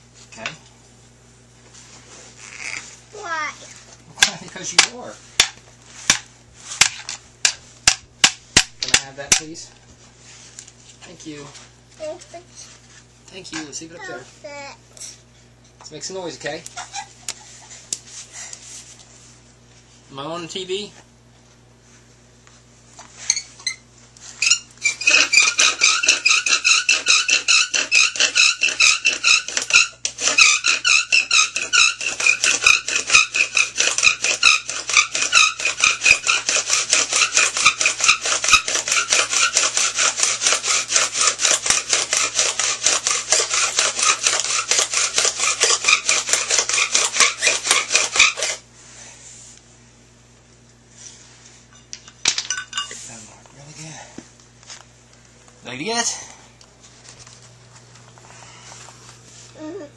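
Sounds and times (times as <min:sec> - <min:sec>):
bow drill spindle squeaking: 0:24.4 - 0:39.6.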